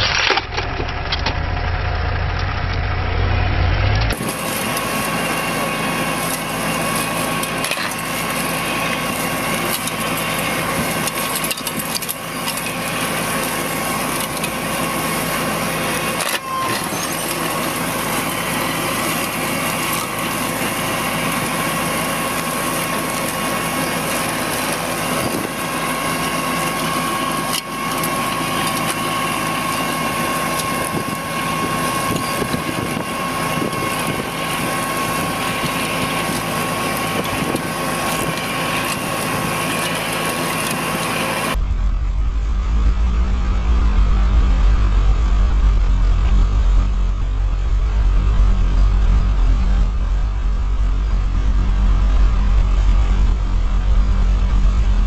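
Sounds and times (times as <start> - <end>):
high whine: 0.0 - 6.5, 40.6 - 55.0
heavy machinery running under load: 0.0 - 55.0.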